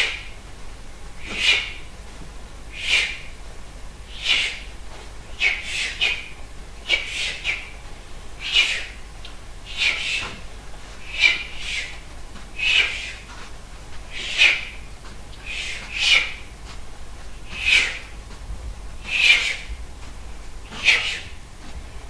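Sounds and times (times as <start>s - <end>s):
scythe swishing through grass: 9.7s - 18.4s, 19.0s - 22.0s.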